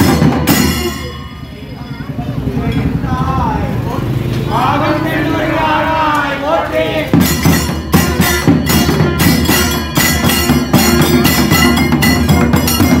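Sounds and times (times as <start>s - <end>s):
barrel drums beaten fast: 0.0s - 1.1s, 7.1s - 13.0s
metallic ringing: 0.0s - 3.2s, 7.2s - 13.0s.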